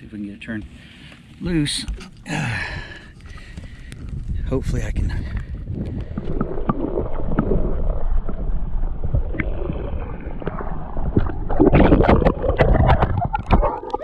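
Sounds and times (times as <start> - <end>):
underwater water sloshing: 0.6 - 14.0
water splashing: 4.9 - 14.0.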